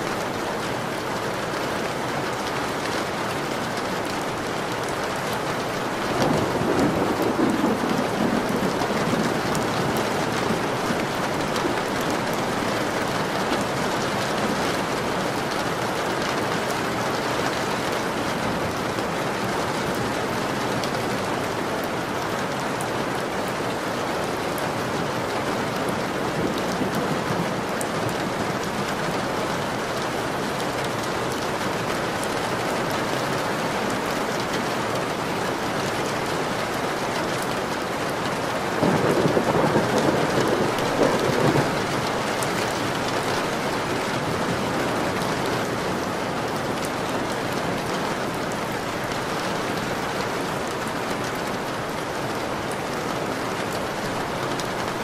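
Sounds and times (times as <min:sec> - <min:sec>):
steady rain falling: 0:00.0 - 0:55.0
thunder rolling: 0:06.2 - 0:12.6, 0:38.8 - 0:42.7.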